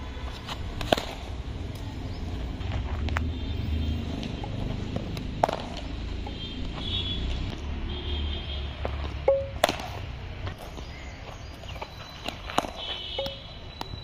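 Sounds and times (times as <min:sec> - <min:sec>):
cricket bat striking ball: 0:00.8 - 0:01.3, 0:05.3 - 0:05.9, 0:09.2 - 0:10.0, 0:12.2 - 0:13.4.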